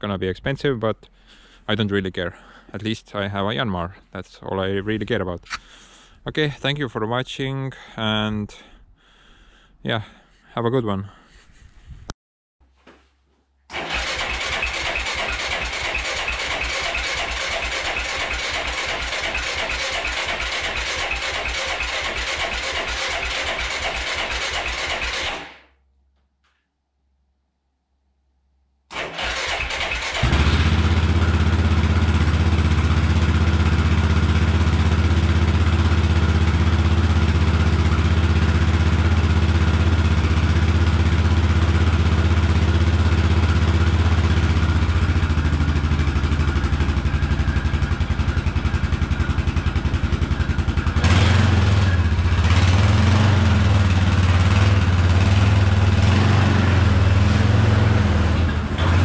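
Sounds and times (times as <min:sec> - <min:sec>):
atv engine revving: 0:13.7 - 0:25.5, 0:28.9 - 0:59.0
atv engine starting and idling: 0:13.7 - 0:25.6, 0:28.9 - 0:59.0.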